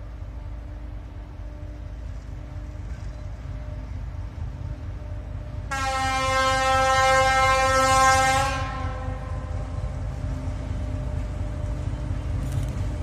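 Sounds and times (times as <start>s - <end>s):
locomotive horn blast: 5.7s - 9.5s.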